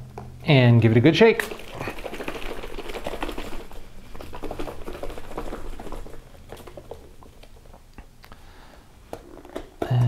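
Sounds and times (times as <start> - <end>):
liquid sloshing in shaken container: 1.4 - 7.9.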